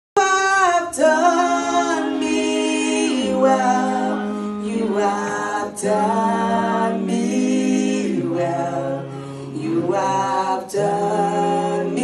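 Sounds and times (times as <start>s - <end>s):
woman singing gospel song: 0.2s - 7.3s.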